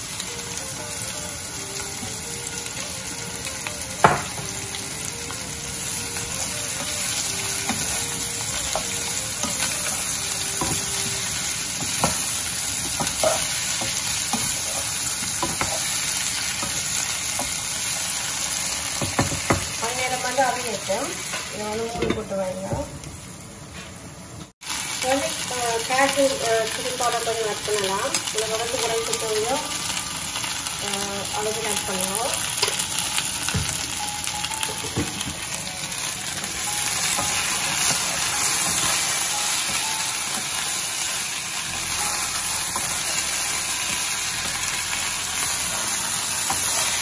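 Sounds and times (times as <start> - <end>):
vegetables sizzling in a saucepan: 0.0 - 47.0
wooden spoon knocking against pan: 4.0 - 4.4, 19.0 - 19.7.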